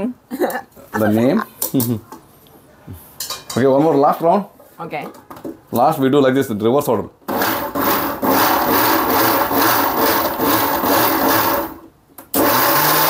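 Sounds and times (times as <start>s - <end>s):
mixer grinder churning grind: 7.3s - 13.0s.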